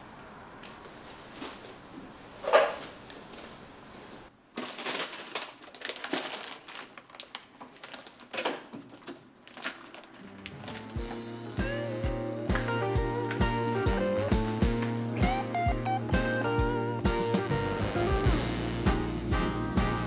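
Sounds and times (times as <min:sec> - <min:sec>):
cloth and plastic rustling: 0:00.9 - 0:11.2.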